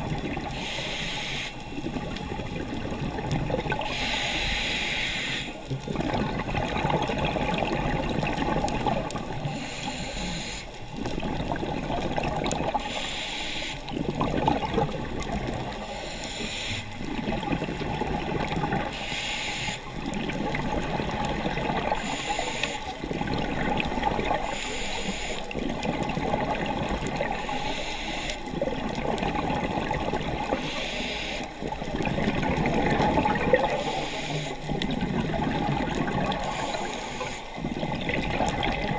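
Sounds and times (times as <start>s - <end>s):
exhaled air bubbling: 0.0s - 38.9s
regulator inhale hiss: 0.5s - 1.8s, 3.8s - 5.6s, 9.4s - 10.8s, 12.8s - 14.0s, 15.8s - 17.0s, 18.9s - 19.9s, 21.9s - 23.0s, 24.4s - 25.7s, 27.3s - 28.6s, 30.5s - 31.6s, 33.6s - 34.8s, 36.4s - 37.7s.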